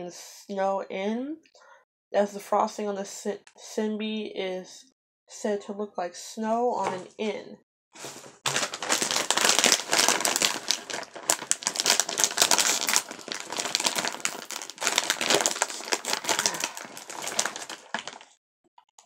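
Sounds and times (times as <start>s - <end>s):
plastic snack bag crinkling: 8.0s - 18.4s.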